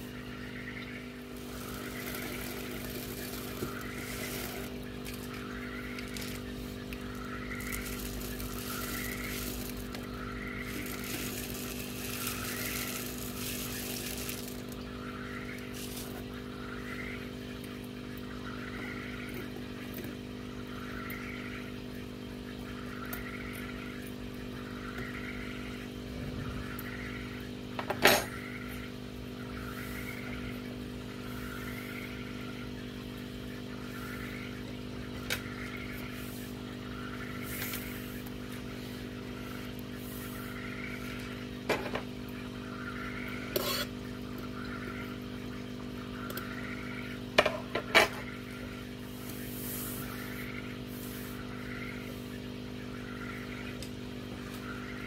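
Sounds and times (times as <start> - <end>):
steady machine hum: 0.0 - 55.0.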